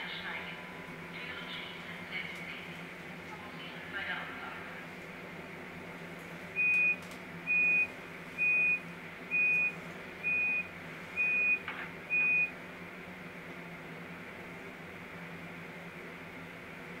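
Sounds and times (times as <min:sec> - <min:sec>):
steady low hum: 0:00.0 - 0:17.0
short high warning beeps: 0:06.6 - 0:12.5.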